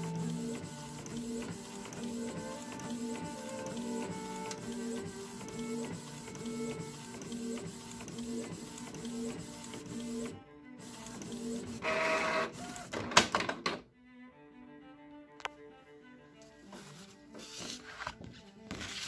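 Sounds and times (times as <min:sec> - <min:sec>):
paper feed clicks: 0:00.0 - 0:13.8
printer carriage shuttling: 0:11.7 - 0:13.8.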